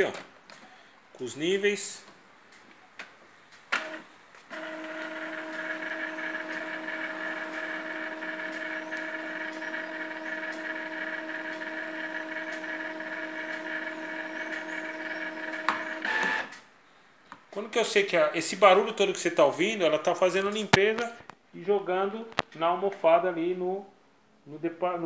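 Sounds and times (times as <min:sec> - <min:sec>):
printer motor whine: 0:03.8 - 0:16.6.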